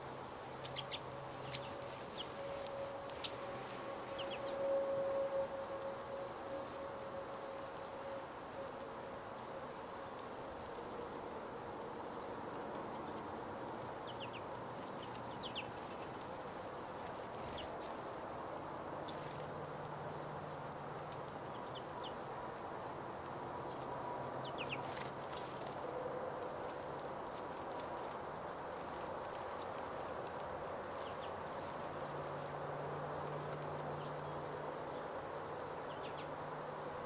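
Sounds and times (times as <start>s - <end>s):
low background noise: 0.0s - 37.0s
finches chirping: 0.6s - 4.6s, 13.9s - 16.2s, 23.6s - 25.4s, 35.8s - 36.4s.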